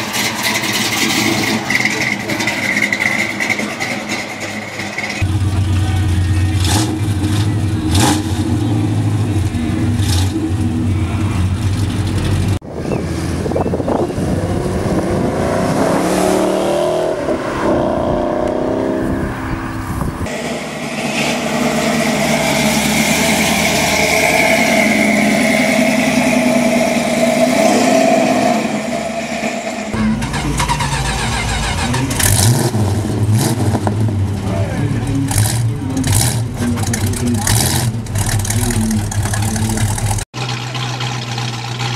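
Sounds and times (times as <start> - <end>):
engine idling: 0.0 - 12.6, 29.4 - 32.5, 34.0 - 41.9
engines revving: 0.0 - 41.9
engine throttle blips: 19.8 - 41.9.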